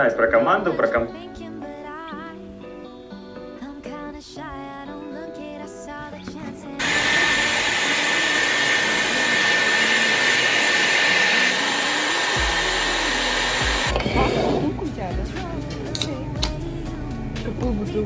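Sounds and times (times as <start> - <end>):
hot-air styler blowing and whining: 6.8 - 15.0.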